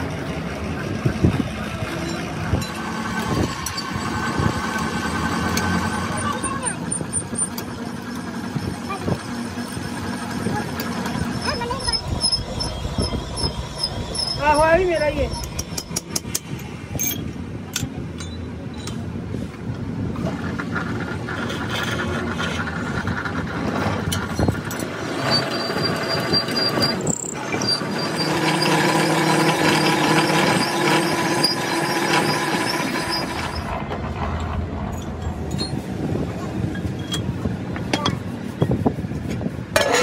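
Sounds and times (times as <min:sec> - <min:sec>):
drill cutting metal: 0:25.2 - 0:33.7.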